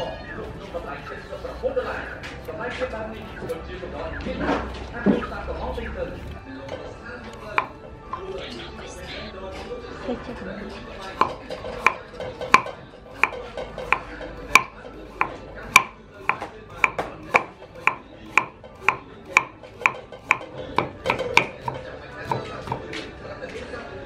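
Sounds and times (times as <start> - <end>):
knife chopping on wooden board: 7.3 - 7.8, 11.2 - 23.0.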